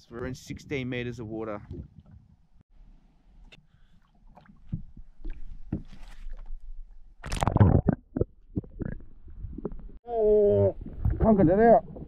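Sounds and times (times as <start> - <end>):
knocks and handling in a boat: 3.5 - 6.5.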